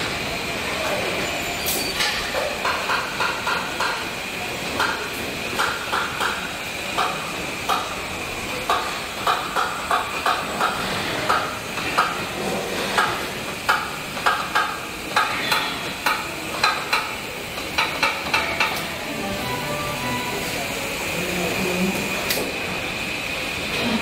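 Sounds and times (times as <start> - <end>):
machinery clacks and clicks: 2.0 - 19.5.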